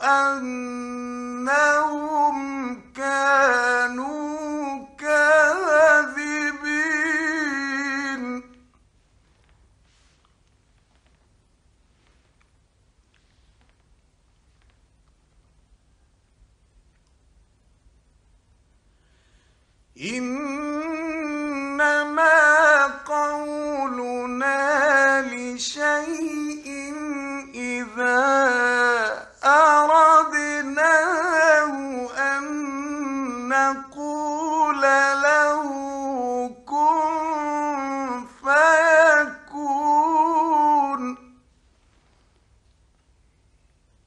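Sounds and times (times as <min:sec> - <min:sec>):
man chanting melodically: 0:00.0 - 0:08.7, 0:20.0 - 0:41.4.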